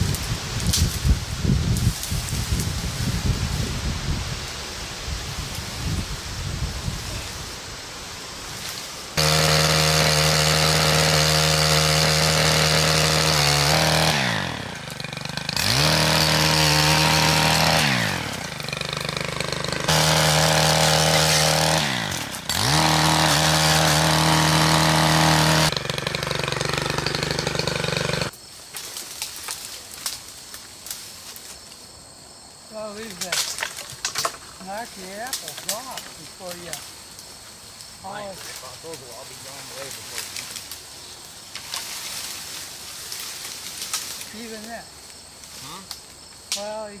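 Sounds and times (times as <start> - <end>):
pole saw engine revving: 9.2 - 28.3.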